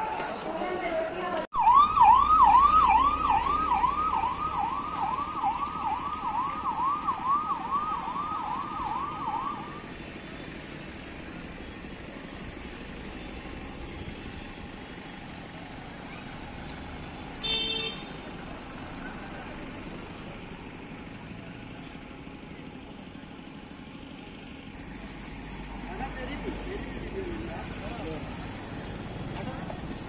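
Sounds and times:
vehicle siren wailing: 0:01.5 - 0:10.0.

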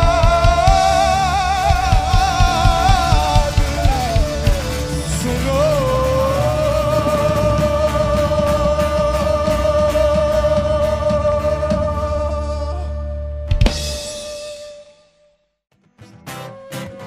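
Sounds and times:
steady drum beat: 0:00.0 - 0:12.2, 0:13.5 - 0:14.9
person singing long high note: 0:00.0 - 0:13.4
electric guitar: 0:00.0 - 0:14.8, 0:15.7 - 0:17.0
bass guitar: 0:00.0 - 0:15.0.

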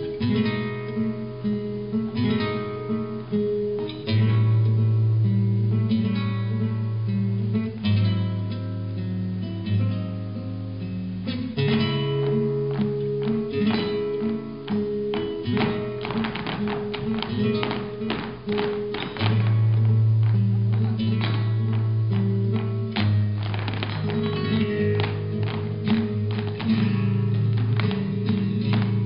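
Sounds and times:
flamenco guitar playing: 0:00.0 - 0:29.0.

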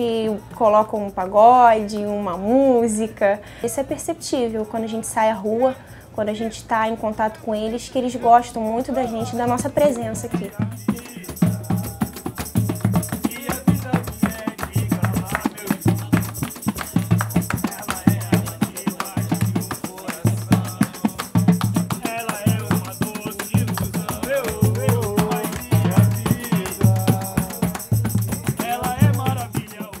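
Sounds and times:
tambourine jingling: 0:00.0 - 0:30.0
voices singing: 0:01.4 - 0:30.0
deep hand drum beat: 0:09.0 - 0:30.0.

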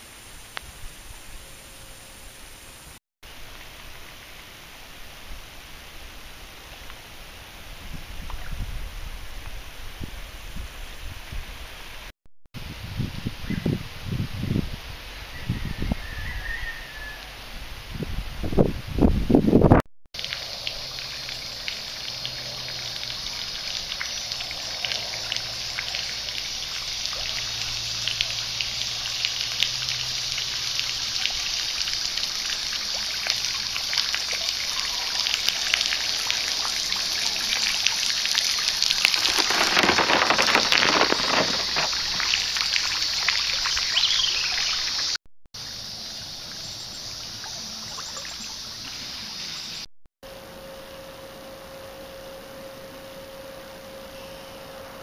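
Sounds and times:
river water trickling and splashing: 0:02.2 - 0:11.9, 0:20.2 - 0:49.8
steady rush of water: 0:20.2 - 0:49.3.

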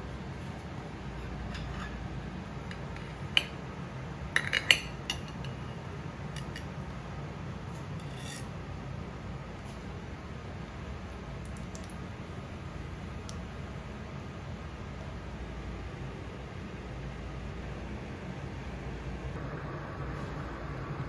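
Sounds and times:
steady low hum: 0:00.0 - 0:21.0
utensil scraping plates: 0:01.1 - 0:03.6, 0:07.8 - 0:08.6.

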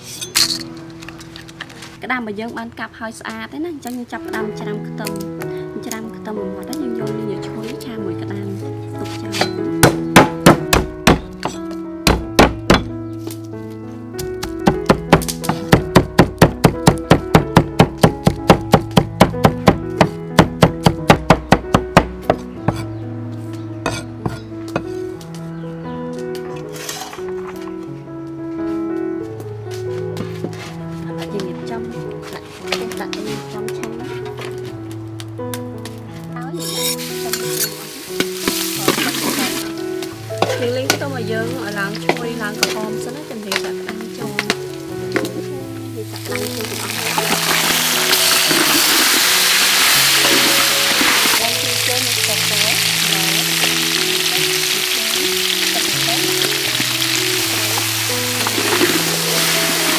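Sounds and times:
metal spatula scraping wok: 0:00.0 - 0:00.7, 0:23.9 - 0:25.0, 0:36.6 - 0:39.7
background music: 0:00.0 - 0:59.9
cleaver chopping on wooden board: 0:09.5 - 0:13.0, 0:14.4 - 0:22.9
garlic sizzling in oil: 0:36.6 - 0:59.9.

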